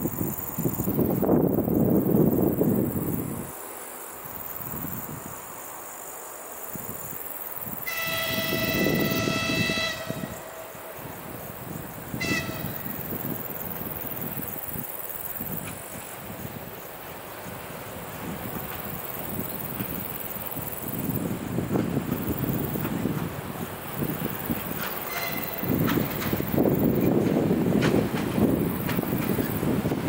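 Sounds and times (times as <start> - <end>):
distant train horn blasts: 7.8 - 11.4, 12.1 - 13.2, 25.0 - 26.4.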